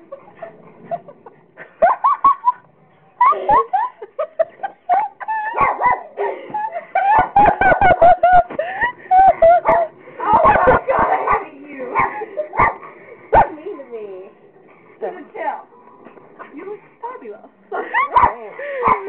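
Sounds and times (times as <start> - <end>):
high-pitched giggling and laughing: 0.0 - 11.2, 17.7 - 19.0.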